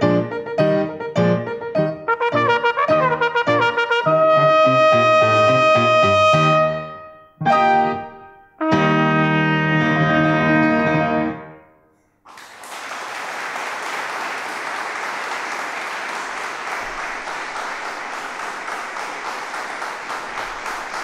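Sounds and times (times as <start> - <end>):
trumpet and piano chord: 0.1 - 12.0
audience applause: 12.2 - 21.0.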